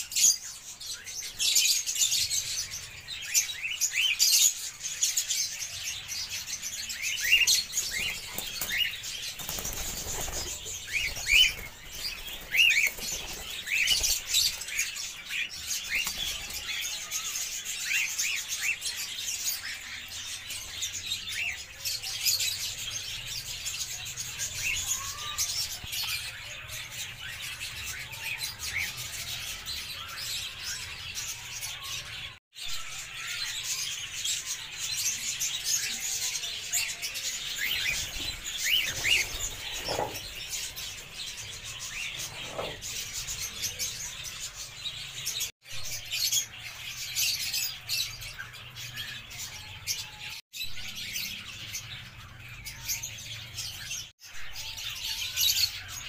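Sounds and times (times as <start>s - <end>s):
flock of birds chattering: 0.0s - 56.0s
wings flapping: 7.8s - 14.7s, 37.8s - 40.7s.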